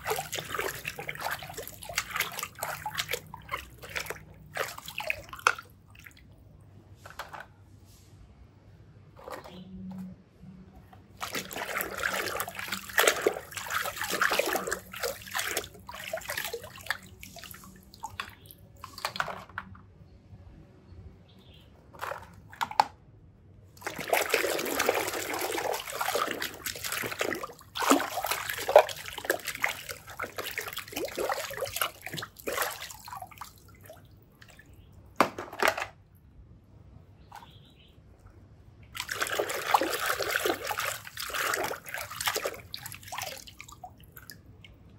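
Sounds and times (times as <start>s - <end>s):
muddy water squelching and sloshing: 0.0s - 6.5s, 11.0s - 19.2s, 23.8s - 34.8s, 38.9s - 44.9s.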